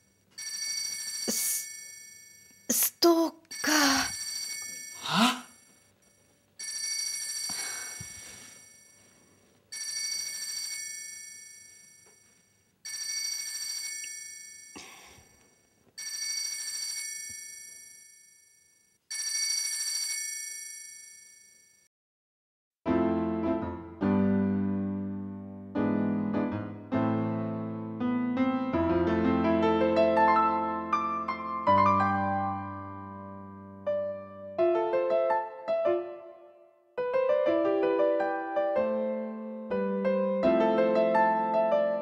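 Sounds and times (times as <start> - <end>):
mobile phone ringing: 0.0 - 2.7, 3.5 - 21.9.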